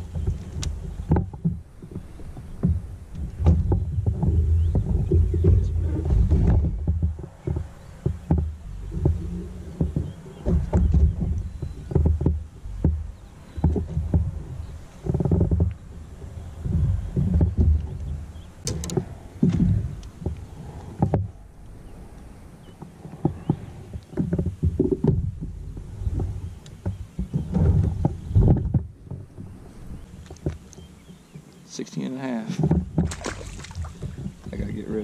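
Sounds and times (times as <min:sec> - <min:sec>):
waves slapping against kayak hull: 0:00.0 - 0:35.0
sharp clicks: 0:18.6 - 0:20.4.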